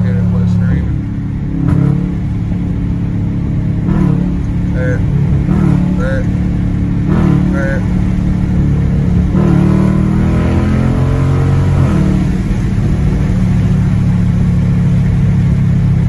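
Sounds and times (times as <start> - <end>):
car engine accelerating: 0.0 - 16.0.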